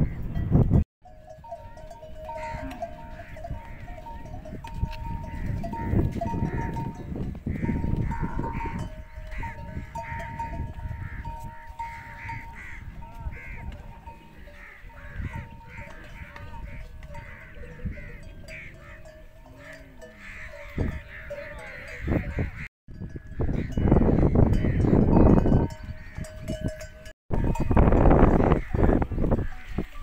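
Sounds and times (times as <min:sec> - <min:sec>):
camel bells jangling: 0:00.4 - 0:22.1, 0:22.9 - 0:30.0.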